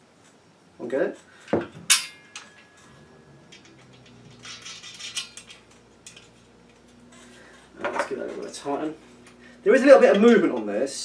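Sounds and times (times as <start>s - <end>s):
light metal rattles: 0.2s - 11.0s
thin metallic ring: 1.9s - 7.7s.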